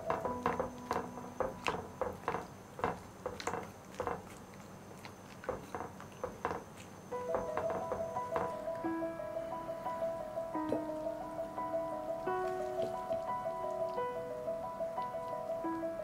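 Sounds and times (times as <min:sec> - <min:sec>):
chopsticks stirring noodles: 0:00.0 - 0:08.9
soup simmering wet pops: 0:00.0 - 0:08.9, 0:10.6 - 0:15.7.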